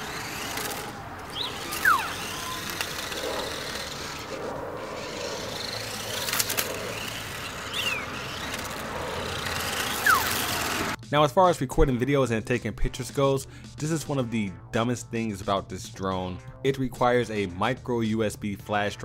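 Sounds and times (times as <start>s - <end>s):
small electric motors running: 0.0s - 11.0s
sharp clicks: 0.2s - 4.3s.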